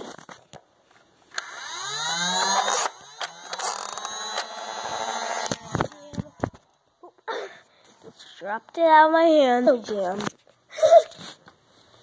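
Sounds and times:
sharp clicks: 0:01.3 - 0:06.6
toy blaster motors whining: 0:01.3 - 0:06.6.

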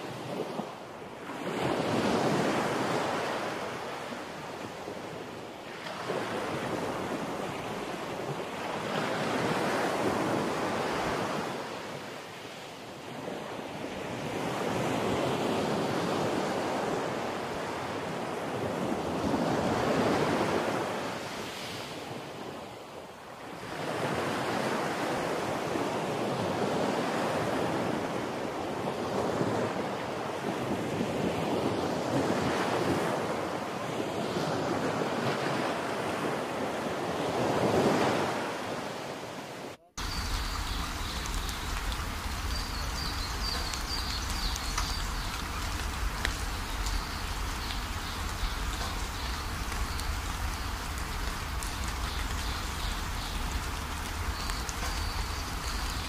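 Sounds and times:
wind buffeting microphone: 0:40.0 - 0:56.0.

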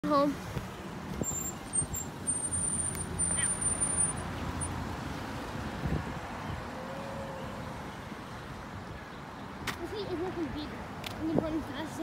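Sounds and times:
road traffic: 0:00.0 - 0:12.0
car driving off: 0:01.1 - 0:07.9.

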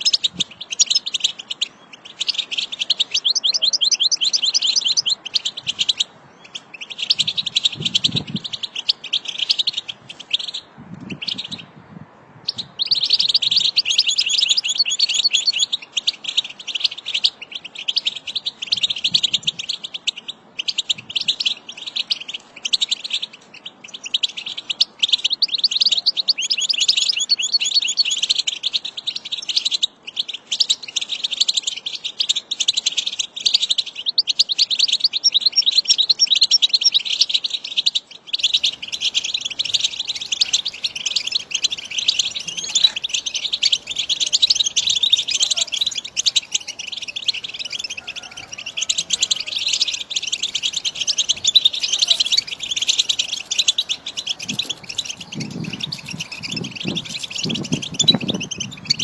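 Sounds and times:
finch twittering: 0:38.3 - 0:59.0.

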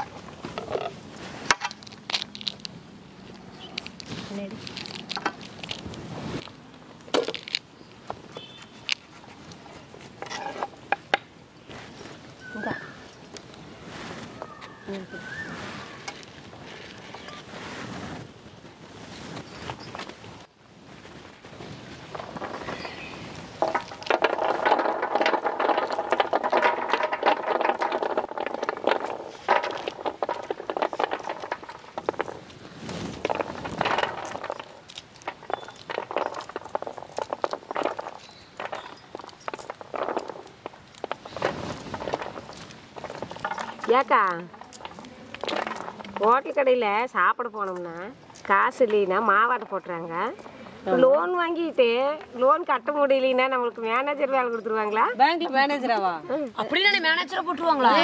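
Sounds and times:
pomegranate rind crackling: 0:00.0 - 0:11.8, 0:22.0 - 0:56.0
pomegranate rind cracking: 0:01.6 - 0:07.7.

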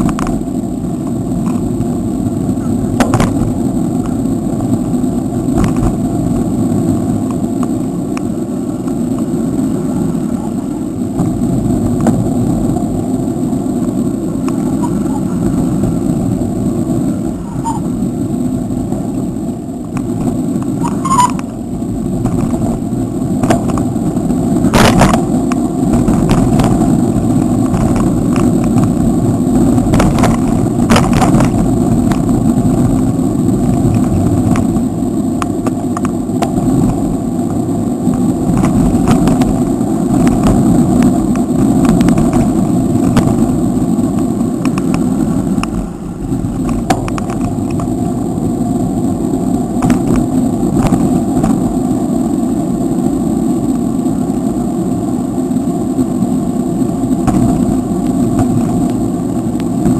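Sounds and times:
tyre and road rumble: 0:00.0 - 0:59.9
wind rushing over microphone: 0:00.0 - 0:59.9
sharp clicks and knocks: 0:03.0 - 0:04.2, 0:29.9 - 0:33.0.

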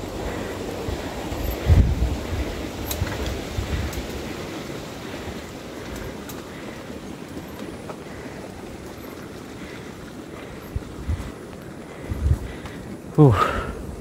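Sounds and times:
bike tyre rumble on trail: 0:00.0 - 0:14.0
wind on microphone: 0:00.8 - 0:04.5, 0:10.6 - 0:14.0
faint ticks: 0:02.8 - 0:13.0.

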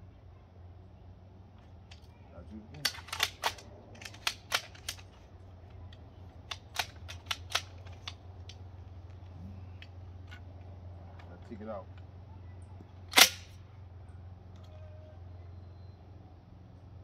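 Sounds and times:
shotgun action clicking: 0:02.8 - 0:05.2, 0:05.9 - 0:08.6, 0:13.1 - 0:13.6.

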